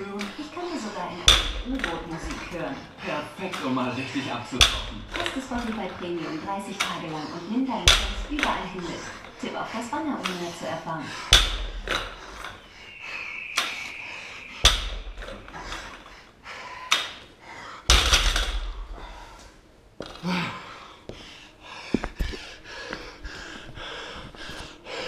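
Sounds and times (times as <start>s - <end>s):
man breathing hard: 0.0s - 25.0s
barbell thudding on rubber floor: 0.1s - 2.8s, 4.5s - 7.1s, 7.7s - 9.3s, 11.1s - 12.6s, 14.6s - 16.1s, 17.9s - 19.0s.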